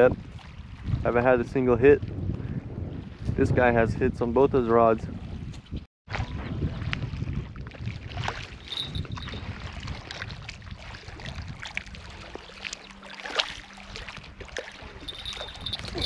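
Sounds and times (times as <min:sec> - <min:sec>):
wind buffeting microphone: 0:00.0 - 0:13.0, 0:13.9 - 0:16.0
small waves lapping gravel: 0:07.9 - 0:16.0.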